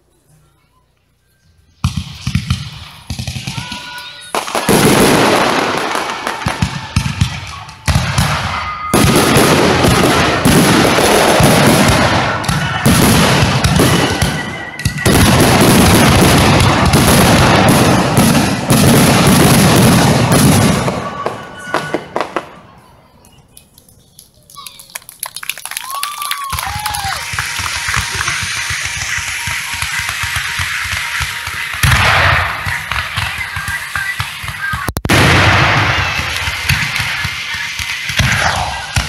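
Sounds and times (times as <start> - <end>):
fireworks bangs and crackle: 1.8 - 22.9, 24.6 - 39.0.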